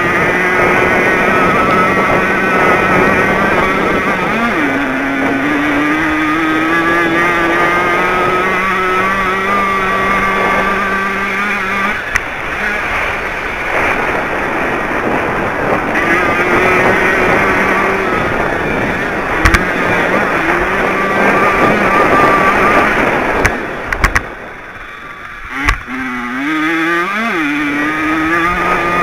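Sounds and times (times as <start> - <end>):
two-stroke engine revving high: 0.0 - 29.0
wind rushing: 0.0 - 29.0.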